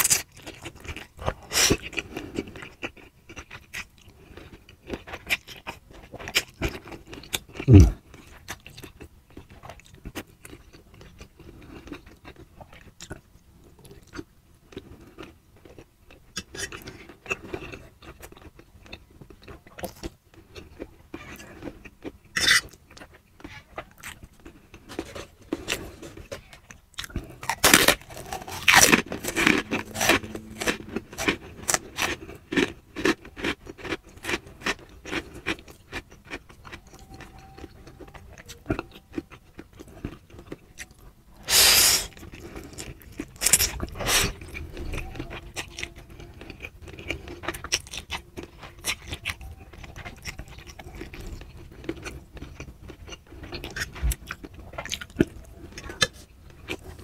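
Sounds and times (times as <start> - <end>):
wet chewing clicks: 25.6 - 57.0.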